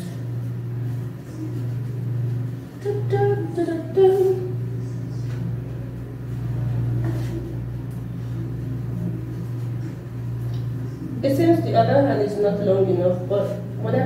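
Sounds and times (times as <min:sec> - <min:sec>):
low mechanical hum: 0:00.0 - 0:14.0
woman humming: 0:02.8 - 0:05.0.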